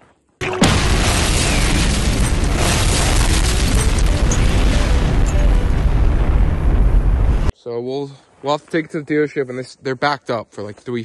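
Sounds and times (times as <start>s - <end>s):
deep explosion blast: 0.6s - 7.5s.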